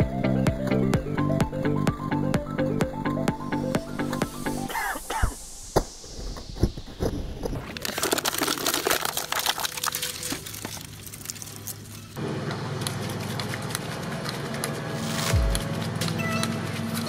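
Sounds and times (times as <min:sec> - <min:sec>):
steady machine hum: 0:00.0 - 0:07.8
shredder crunching plastic bottle: 0:07.5 - 0:11.9.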